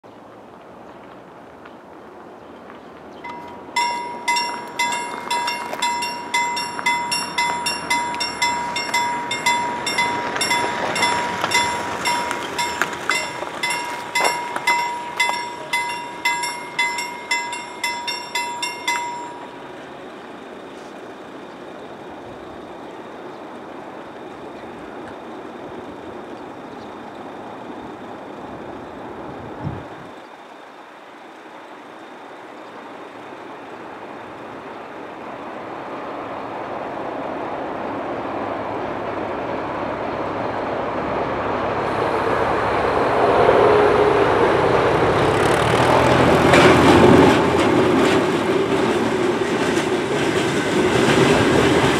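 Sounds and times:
level-crossing warning bell ringing: 0:03.2 - 0:20.2.

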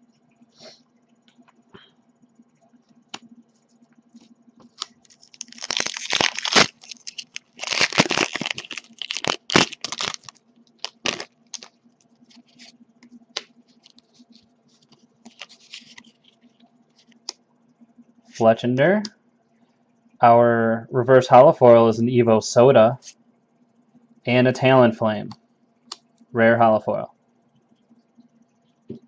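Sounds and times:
foil wrapper tearing and crinkling: 0:04.8 - 0:11.7, 0:15.3 - 0:16.2.

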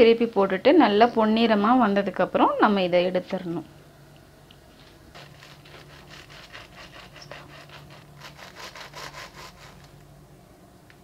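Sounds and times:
knife sawing through crusty bread: 0:05.1 - 0:09.9.

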